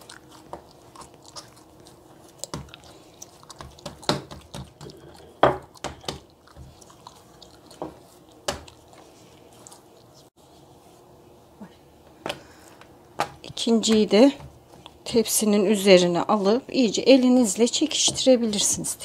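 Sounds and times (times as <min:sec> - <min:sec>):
dough squishing: 0:00.0 - 0:11.2, 0:12.2 - 0:19.0.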